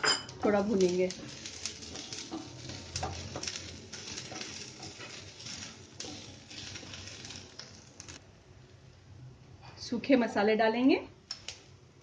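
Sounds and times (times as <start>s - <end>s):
wooden spatula scraping frying pan: 0.4s - 8.2s.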